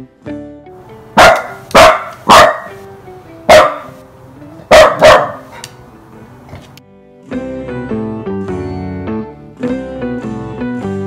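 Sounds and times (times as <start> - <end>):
quiet background music: 0.0 - 11.0
dog barking: 1.2 - 2.8, 3.5 - 4.0, 4.7 - 5.7.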